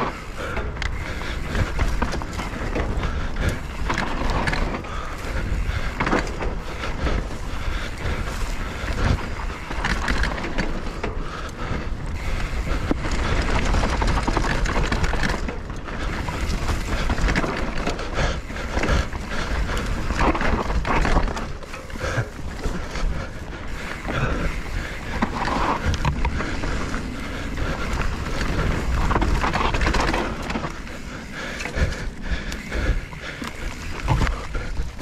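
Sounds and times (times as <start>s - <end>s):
bike rattling over bumps: 0.0s - 35.0s
tyres crunching on dirt: 12.1s - 35.0s.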